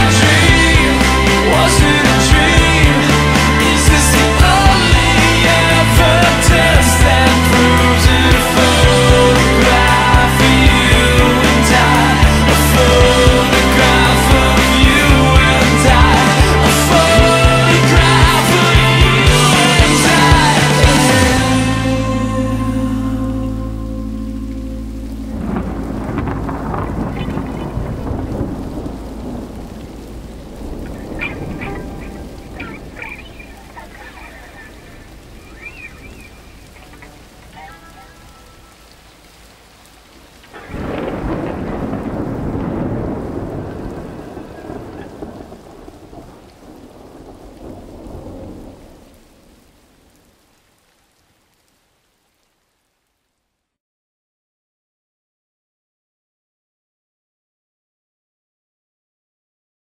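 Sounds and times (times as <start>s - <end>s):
rumbling thunder: 0.0s - 21.4s, 25.0s - 39.6s, 40.2s - 50.3s
steady rain: 0.0s - 53.8s.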